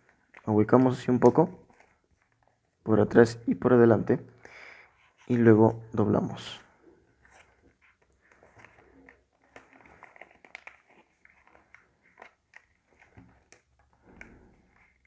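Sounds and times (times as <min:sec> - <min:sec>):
paper being folded: 0:07.2 - 0:15.0.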